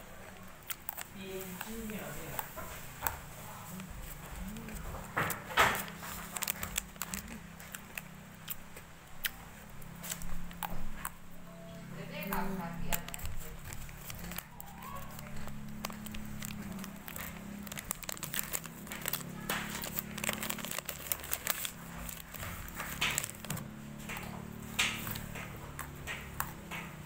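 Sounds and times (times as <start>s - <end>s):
plastic packet crinkling: 0.3s - 8.8s, 12.2s - 25.4s.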